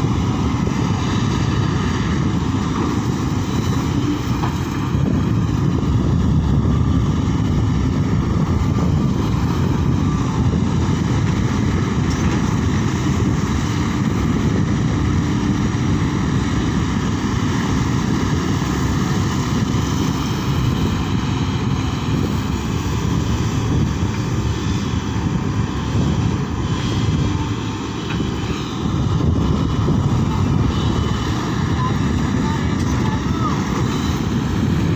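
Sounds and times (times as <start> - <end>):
excavator diesel engine running: 0.0 - 34.9.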